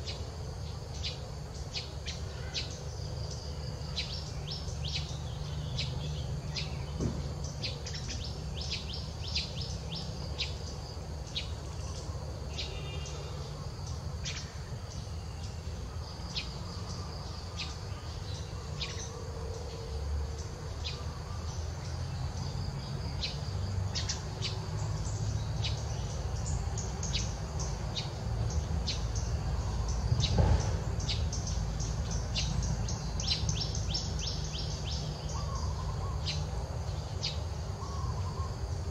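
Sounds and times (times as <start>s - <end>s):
birds chirping: 0.0s - 38.9s
dull thump: 7.0s - 7.3s.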